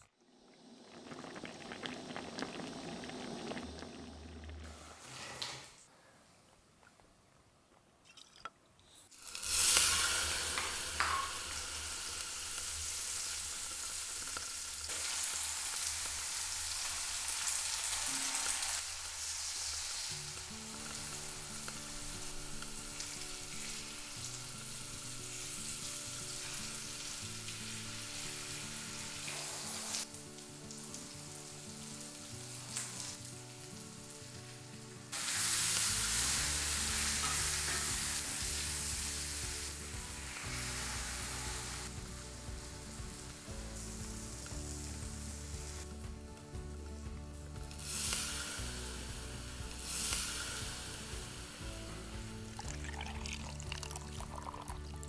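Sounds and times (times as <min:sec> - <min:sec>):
food sizzling in a wok: 0:09.1 - 0:55.0
soft low melody: 0:20.2 - 0:55.0.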